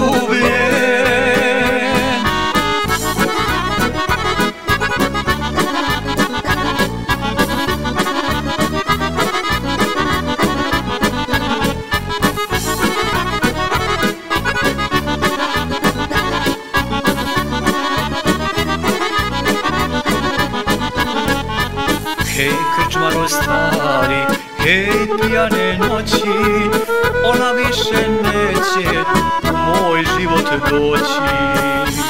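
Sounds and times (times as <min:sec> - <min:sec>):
accordion melody: 0:00.0 - 0:32.0
bass and drum beat: 0:00.0 - 0:32.0.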